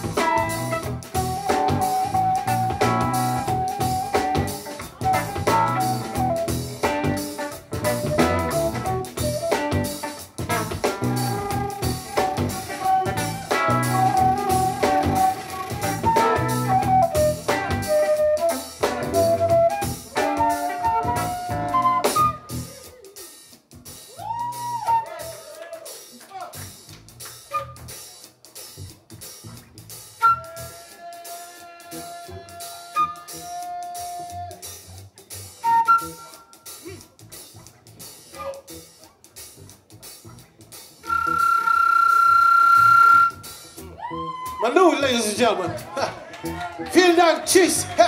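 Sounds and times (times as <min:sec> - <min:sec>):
electric bass: 0:00.0 - 0:22.8, 0:28.8 - 0:30.7, 0:36.8 - 0:44.5, 0:45.3 - 0:48.0
drum kit: 0:00.0 - 0:48.0
funk band playing: 0:00.0 - 0:48.0
flute solo: 0:00.1 - 0:07.2, 0:07.8 - 0:10.2, 0:11.0 - 0:22.9, 0:24.1 - 0:25.6, 0:27.5 - 0:28.0, 0:30.2 - 0:31.2, 0:32.6 - 0:34.6, 0:35.6 - 0:36.6, 0:41.0 - 0:44.7.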